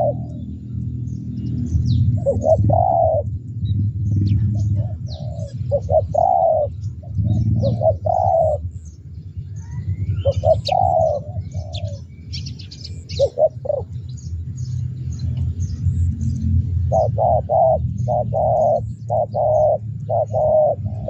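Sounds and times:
dove cooing: 0.0s - 0.7s, 1.7s - 3.5s, 4.1s - 9.0s, 9.6s - 14.3s, 16.8s - 21.0s
low rumble: 0.0s - 21.0s
small birds chirping: 0.0s - 21.0s.

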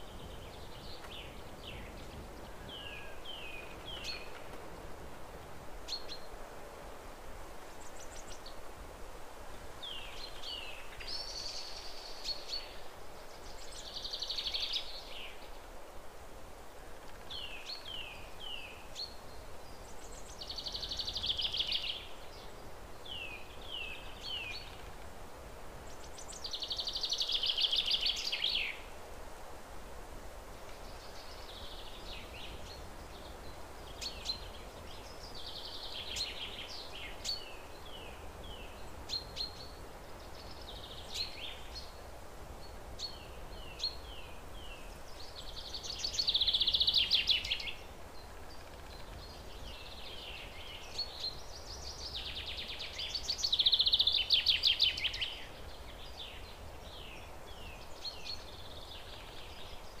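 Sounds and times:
low outdoor background noise: 0.0s - 60.0s
birds chirping: 42.6s - 60.0s.

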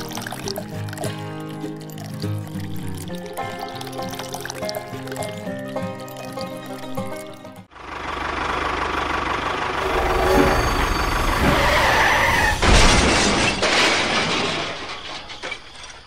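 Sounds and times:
train rushing: 9.7s - 13.6s
loud crash: 9.8s - 16.0s.

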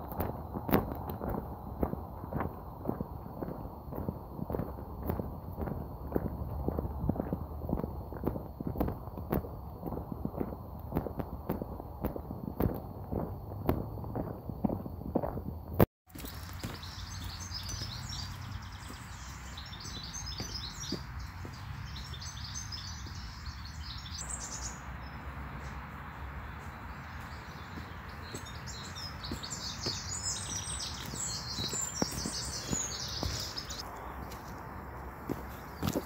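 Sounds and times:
boot step crunching on gravel: 0.0s - 23.2s, 27.2s - 36.0s
songbirds singing: 16.1s - 36.0s.

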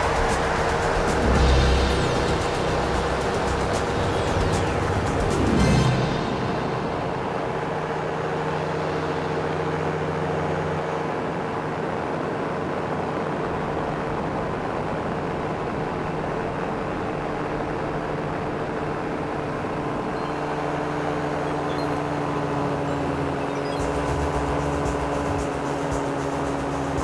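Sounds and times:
light aircraft engine droning: 0.0s - 27.0s.

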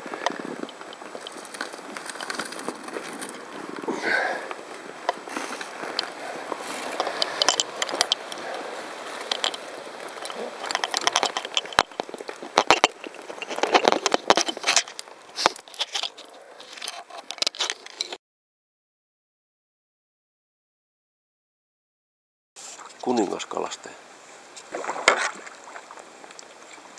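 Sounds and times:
sharp clicks and knocks: 5.1s - 18.2s.

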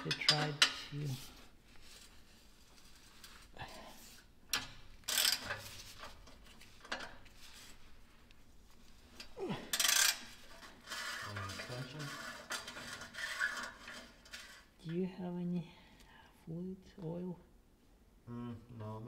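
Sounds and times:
metal tools clinking and scraping: 0.0s - 1.2s, 4.5s - 7.3s, 9.2s - 14.7s.

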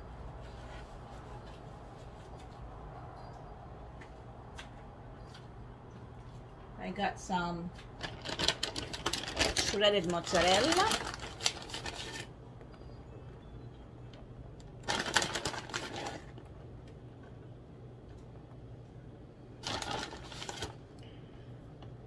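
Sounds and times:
plastic bag crinkling: 8.0s - 12.3s, 14.7s - 16.5s, 19.6s - 20.8s.

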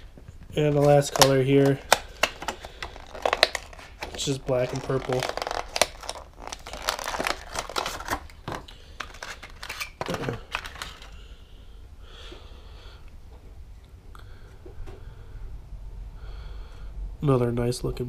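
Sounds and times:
plastic packaging crinkling: 0.5s - 11.2s.

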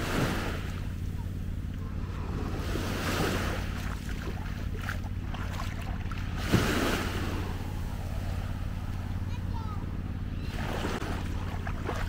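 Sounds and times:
steady low hum: 0.0s - 12.0s
surf washing onto beach: 2.1s - 9.6s.

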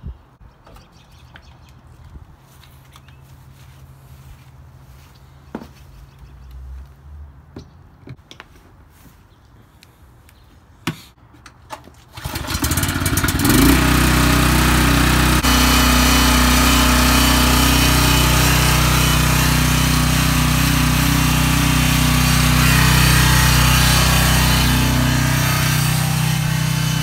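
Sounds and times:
generator engine running: 12.2s - 27.0s.

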